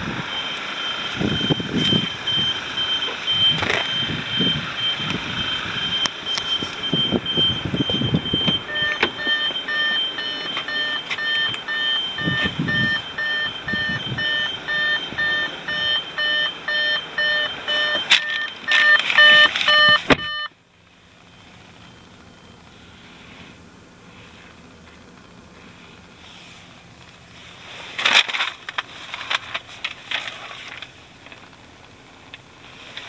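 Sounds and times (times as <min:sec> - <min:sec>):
car warning chime beeping: 0:00.2 - 0:23.1.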